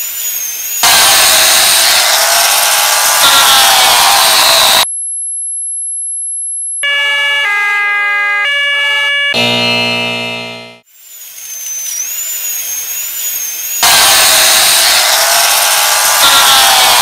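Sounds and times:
electronic alarm tones: 0.0s - 2.0s, 6.7s - 14.8s
dense buzzing chord: 9.4s - 10.8s
very high steady tone: 9.4s - 10.8s.

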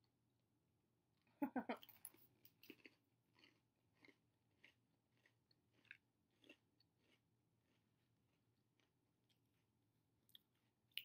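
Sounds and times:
faint chewing of crunchy snacks: 1.0s - 11.0s.

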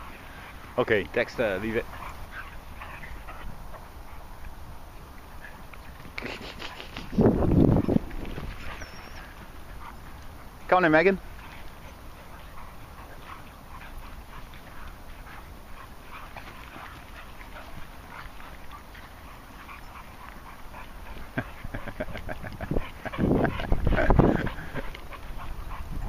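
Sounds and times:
dogs play-fighting on grass: 0.0s - 26.0s
dog vocal sounds: 5.4s - 26.0s.

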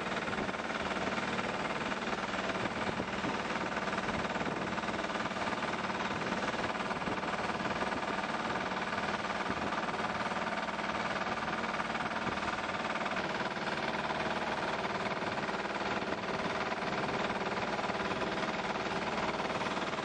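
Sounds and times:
boat engine running: 0.0s - 20.0s.

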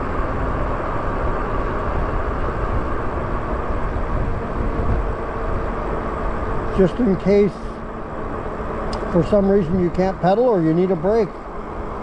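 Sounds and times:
faint steady whine: 0.0s - 12.0s
wind on microphone: 1.8s - 6.7s.

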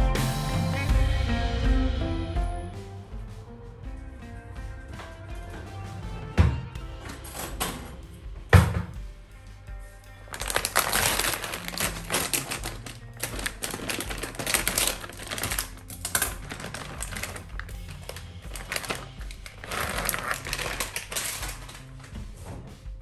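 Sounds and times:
background music: 0.0s - 23.0s
plastic packaging crinkling: 10.3s - 22.2s.

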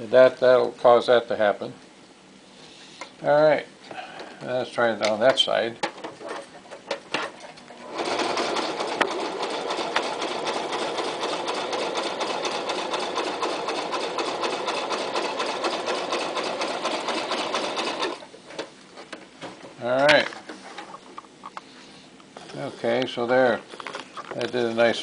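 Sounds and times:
sewing machine stitching: 7.1s - 18.7s.

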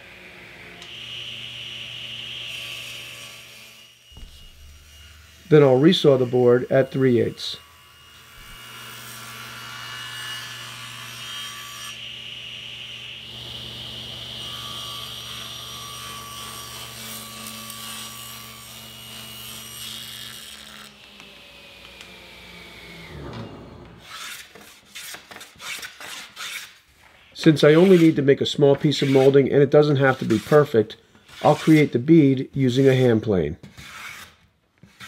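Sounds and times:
table saw blade humming: 0.0s - 25.4s
hand plane strokes on wood: 27.5s - 28.2s, 28.9s - 29.4s, 30.1s - 32.0s, 33.6s - 35.0s.

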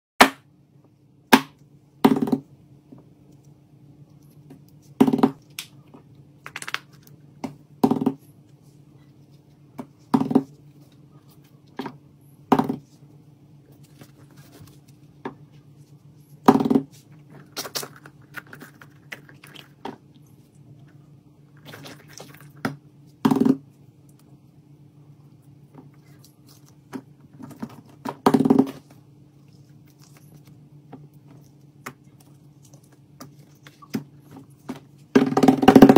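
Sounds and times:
faint steady hum: 0.2s - 35.9s.

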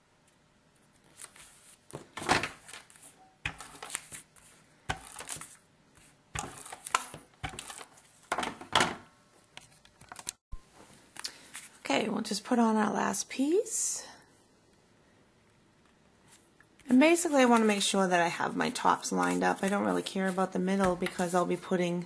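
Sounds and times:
card stock being handled: 0.8s - 8.3s
tape runner scratching paper: 2.6s - 8.1s.

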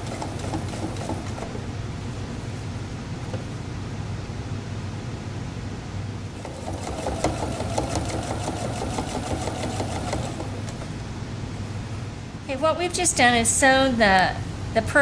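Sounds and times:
sewing machine stitching: 0.0s - 1.6s, 6.4s - 10.8s.

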